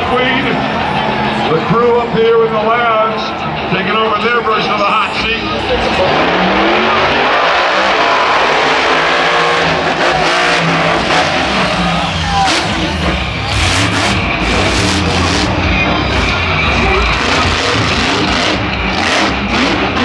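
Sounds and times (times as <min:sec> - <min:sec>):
stadium crowd noise: 0:00.0 - 0:20.0
truck engine revving: 0:00.0 - 0:20.0.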